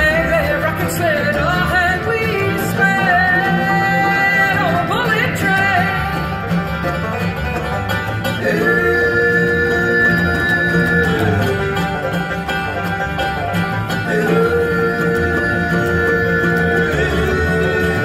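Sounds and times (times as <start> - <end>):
woman singing: 0.0 - 6.2
acoustic guitar: 0.0 - 18.0
banjo: 0.0 - 18.0
mandolin: 0.0 - 18.0
upright bass: 0.0 - 18.0.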